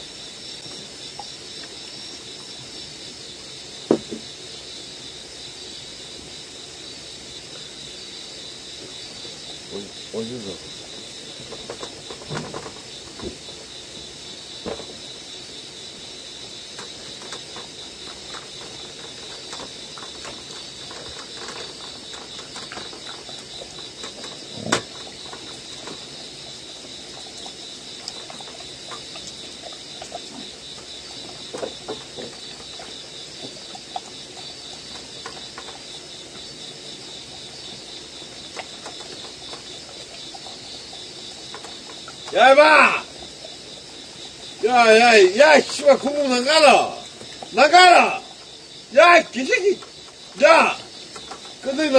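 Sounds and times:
crickets chirping: 0.0 - 51.9
dogs lapping and eating: 0.1 - 51.9.

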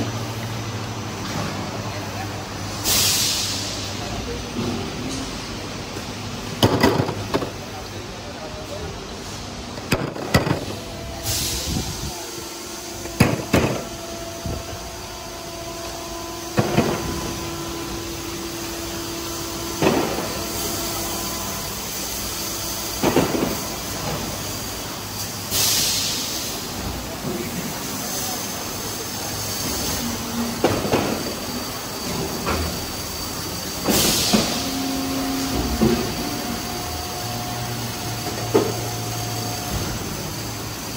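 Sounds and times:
machines running: 0.0 - 40.9
machine clanks and knocks: 6.6 - 7.6.

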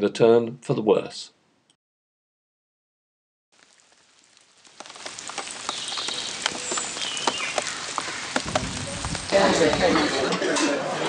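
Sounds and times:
rain falling and dripping: 3.5 - 11.0
bird chirping: 5.5 - 8.4.

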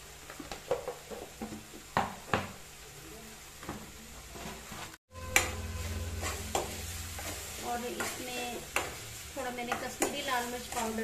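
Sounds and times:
low steady hum: 5.1 - 9.8.

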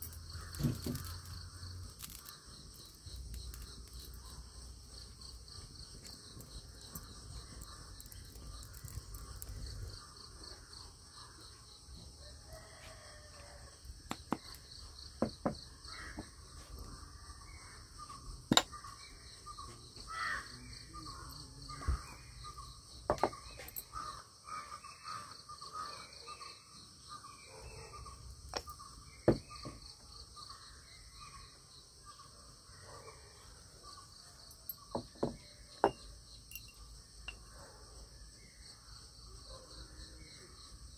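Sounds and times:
crickets chirring: 0.0 - 40.9
crows cawing: 20.0 - 20.7.

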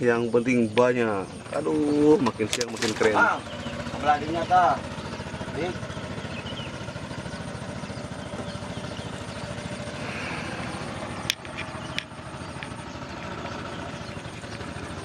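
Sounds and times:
small engine running: 0.5 - 15.0
sharp clicks: 2.2 - 3.2, 11.2 - 13.3.

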